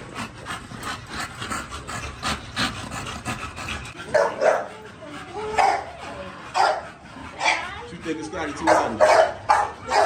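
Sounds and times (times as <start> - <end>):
dog barking: 4.1 - 4.7, 5.5 - 5.9, 6.6 - 6.8, 7.4 - 7.6, 8.6 - 10.0.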